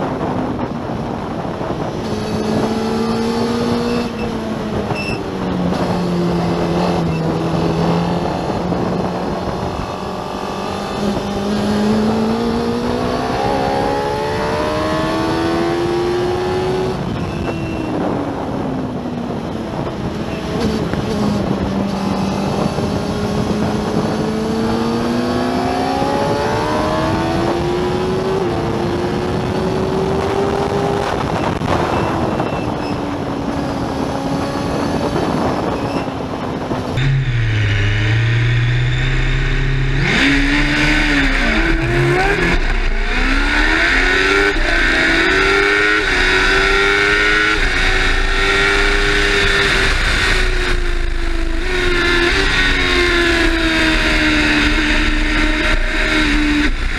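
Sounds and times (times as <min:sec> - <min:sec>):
wind and road noise: 0:00.0 - 0:56.9
racing engine revving: 0:05.5 - 0:18.1, 0:20.4 - 0:32.4, 0:36.5 - 0:56.9.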